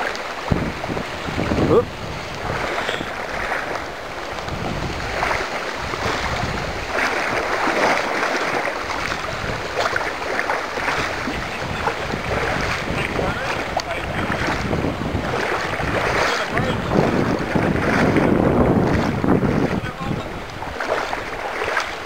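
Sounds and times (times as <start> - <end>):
river rushing: 0.0 - 22.0
wind buffeting microphone: 0.0 - 22.0.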